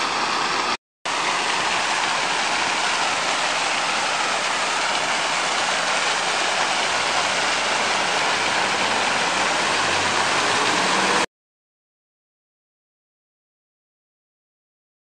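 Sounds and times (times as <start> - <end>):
distant street traffic hum: 0.0 - 11.2
fountain water splashing: 0.0 - 11.3.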